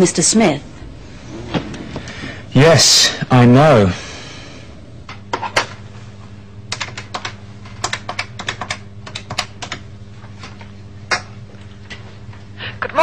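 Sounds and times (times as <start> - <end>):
low hum: 0.0 - 12.8
keyboard typing: 6.7 - 9.9.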